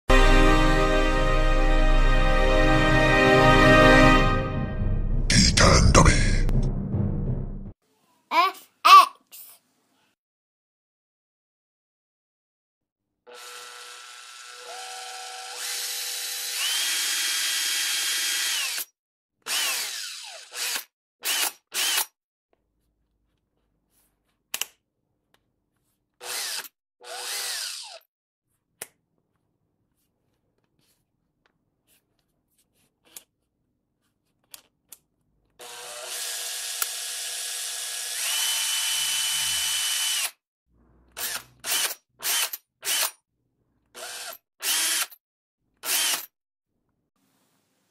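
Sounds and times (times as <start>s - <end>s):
cordless drill motor whining: 13.3s - 18.8s, 19.5s - 22.0s, 26.2s - 28.0s, 35.6s - 40.3s, 41.2s - 43.1s, 45.9s - 46.2s.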